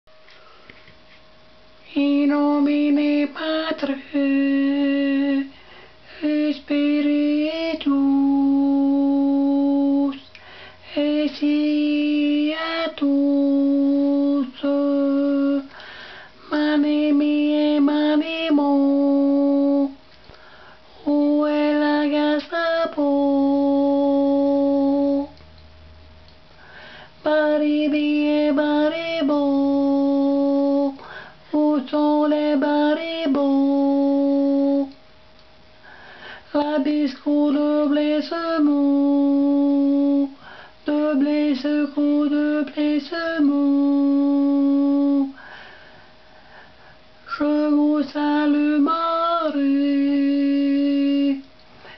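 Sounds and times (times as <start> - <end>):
person singing: 1.8 - 15.8, 16.4 - 20.0, 21.0 - 25.4, 27.2 - 35.0, 36.5 - 45.4, 47.2 - 51.5.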